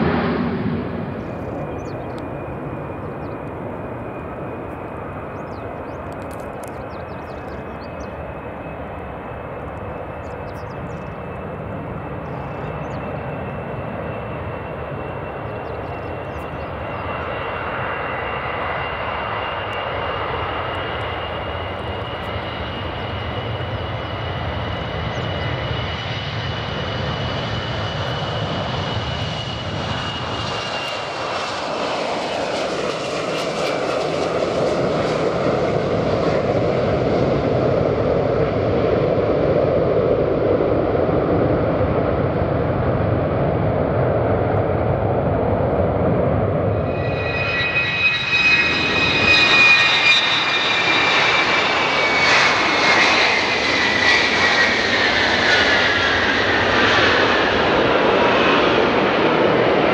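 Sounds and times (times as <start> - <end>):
jet aircraft taking off: 0.0 - 59.9.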